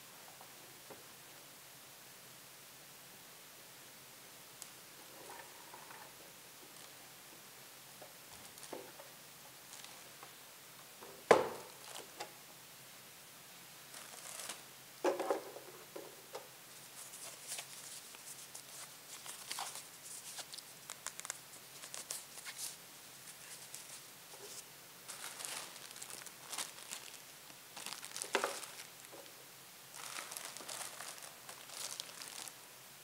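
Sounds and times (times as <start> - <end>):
plastic wrapping crinkling: 9.7 - 10.1, 13.9 - 14.6, 16.8 - 29.3, 29.9 - 32.6.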